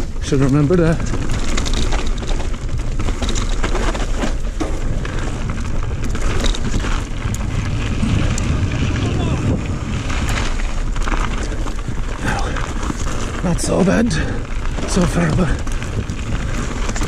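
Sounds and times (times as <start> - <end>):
bike knocking and rattling: 0.0 - 17.0
bike tyres rumbling over gravel: 0.0 - 17.0.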